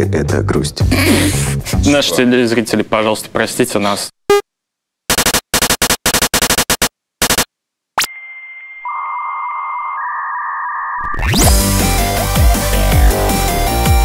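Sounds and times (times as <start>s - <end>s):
digital glitch static: 5.1s - 7.5s
electronic beep tone: 8.0s - 11.6s.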